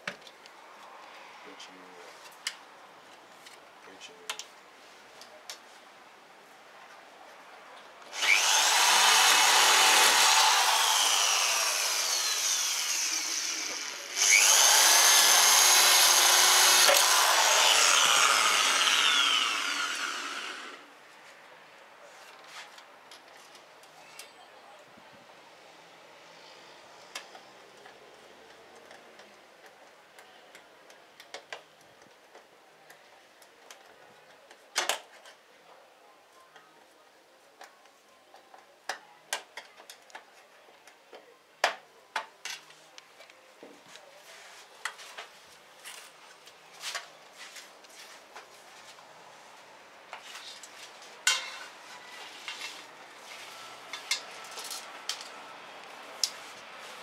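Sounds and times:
metal frames and tools clinking: 51.3 - 51.7.

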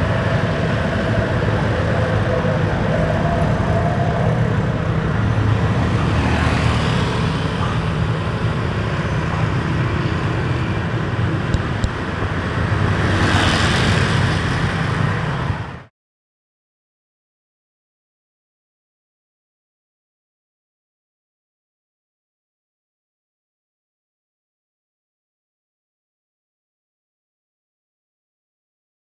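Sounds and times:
traffic engine rumble: 0.0 - 15.9
vehicles passing: 0.0 - 15.9.

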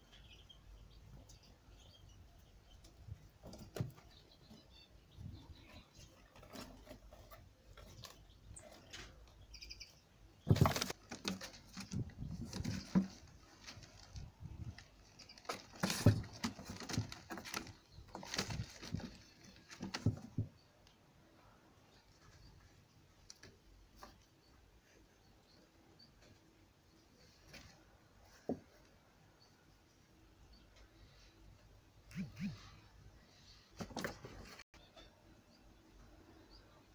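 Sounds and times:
kittens scrabbling on paper: 10.4 - 20.5.

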